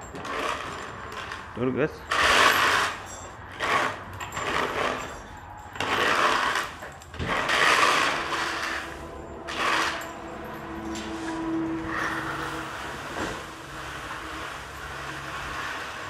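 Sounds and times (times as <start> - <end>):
hand tool scraping floor: 0.0 - 1.5, 2.1 - 16.0.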